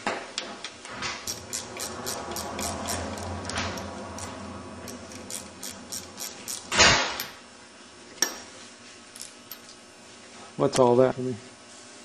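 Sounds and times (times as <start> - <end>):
ratchet wrench clicking: 1.3 - 7.4.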